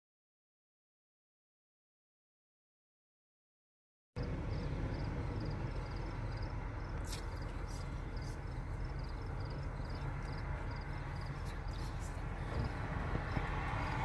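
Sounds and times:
low rumble: 4.2 - 14.0.

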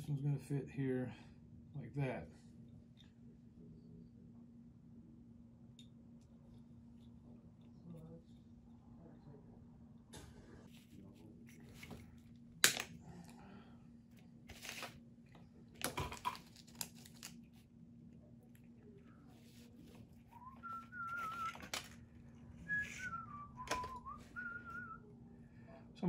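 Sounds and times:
steady low hum: 0.0 - 26.0
man whistling softly: 20.2 - 21.7, 22.6 - 25.1.

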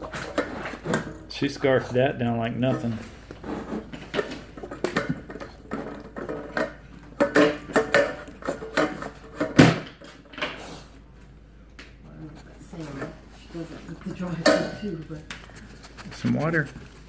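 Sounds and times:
metal bowl clanking: 14.3 - 15.1.

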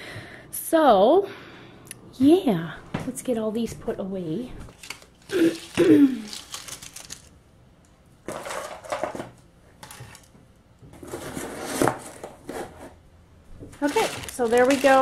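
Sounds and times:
small plastic toys clattering: 4.7 - 7.3, 8.3 - 10.3, 13.8 - 15.0.

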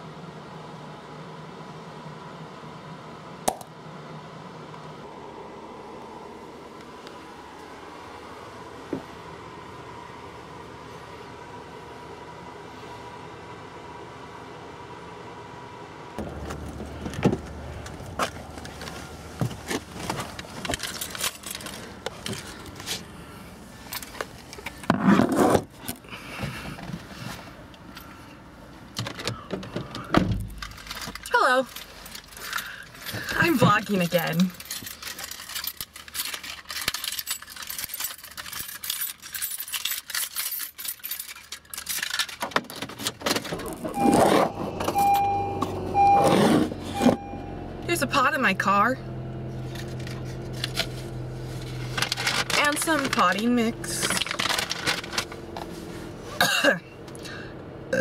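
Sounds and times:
car engine starting: 16.2 - 26.4, 42.9 - 58.0
keys jangling: 20.7 - 22.8, 30.5 - 44.0
dashboard warning chime: 43.8 - 49.0.

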